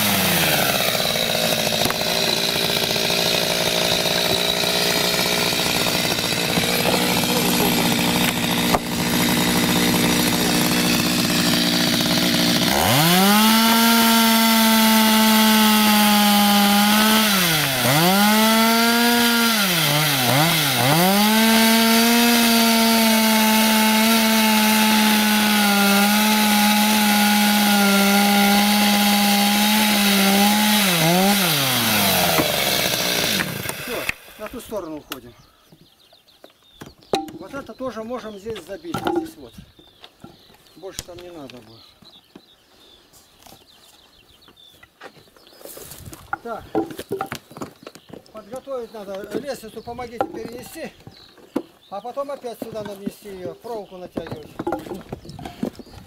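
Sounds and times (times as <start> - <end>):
chainsaw cutting wood: 0.0 - 34.8, 46.2 - 47.7, 50.1 - 51.7, 54.2 - 56.0.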